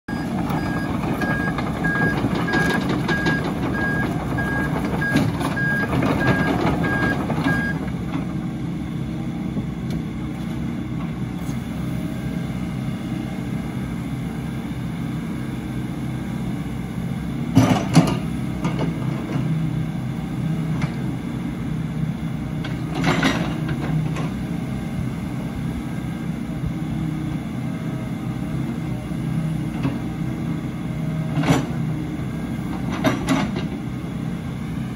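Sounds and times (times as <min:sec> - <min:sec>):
travel alarm beeping: 0:00.1 - 0:07.8
excavator diesel engine running: 0:00.1 - 0:34.9.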